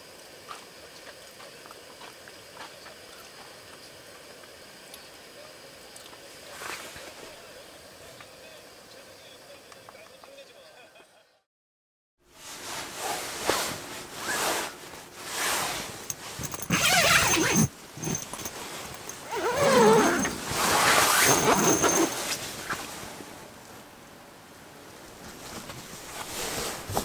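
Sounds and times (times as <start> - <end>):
fabric rustling: 12.4 - 23.2, 25.2 - 27.0
zipper rasping: 14.2 - 22.4.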